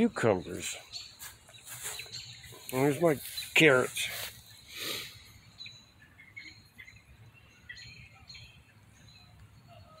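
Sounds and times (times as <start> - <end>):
faint bird chirps: 4.4 - 10.0.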